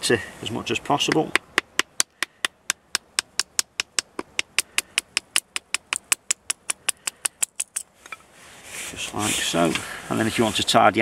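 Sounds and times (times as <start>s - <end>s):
wooden baton tapping knife spine: 1.1s - 7.8s.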